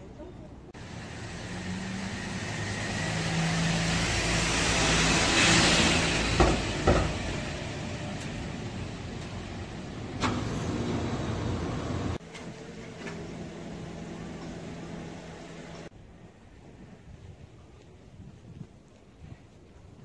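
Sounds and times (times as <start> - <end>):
car passing by: 0.8 - 12.2
sharp knocks: 6.3 - 7.3.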